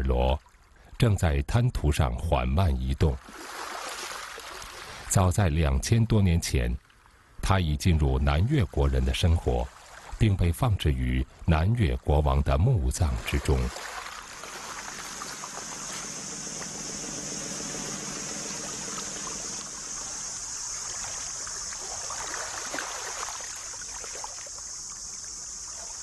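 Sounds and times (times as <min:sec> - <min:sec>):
constant high hiss: 0:02.0 - 0:26.0
water trickling: 0:03.2 - 0:05.2, 0:08.4 - 0:10.3, 0:11.2 - 0:26.0.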